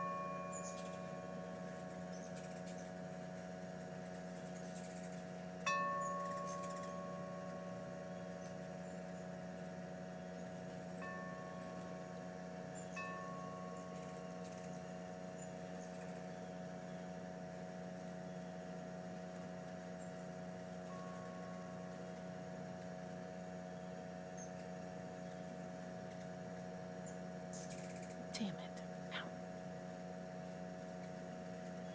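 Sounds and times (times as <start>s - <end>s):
soft ringing tone: 0.0s - 2.7s, 5.6s - 9.3s, 10.9s - 15.8s, 20.8s - 23.8s
steady machine hum: 0.0s - 31.9s.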